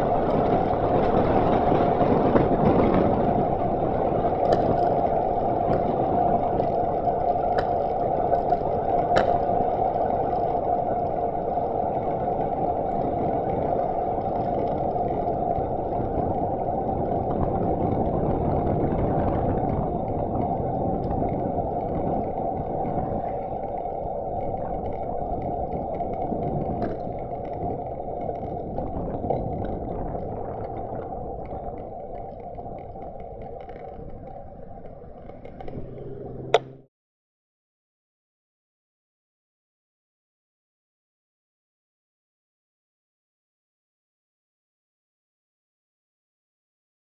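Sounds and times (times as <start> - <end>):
road and wind rumble: 0.0 - 36.9.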